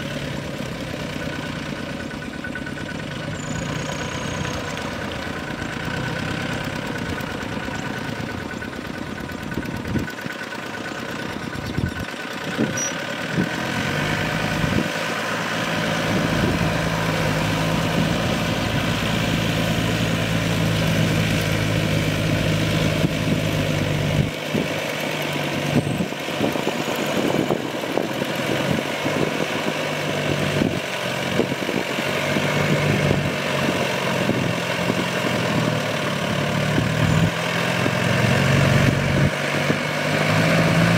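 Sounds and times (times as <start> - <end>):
tractor diesel engine droning: 0.0 - 40.9.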